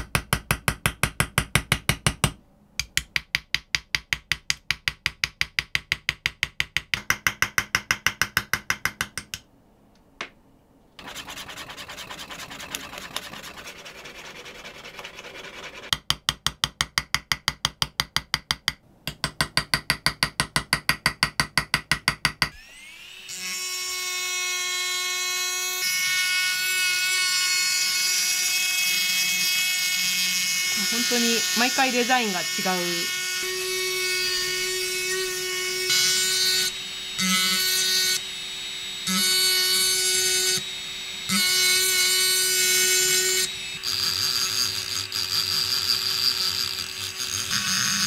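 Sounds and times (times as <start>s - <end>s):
hammer tapping chisel on steel: 0.0s - 9.5s, 15.9s - 22.6s
chisel scraping steel: 11.0s - 15.9s
rotary engraving tool whining: 11.0s - 15.9s, 22.5s - 48.0s.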